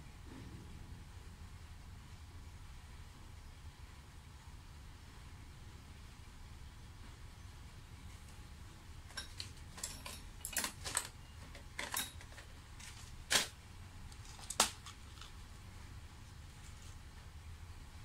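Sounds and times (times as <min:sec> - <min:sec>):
plastic box clicking and rattling: 0:09.1 - 0:15.3.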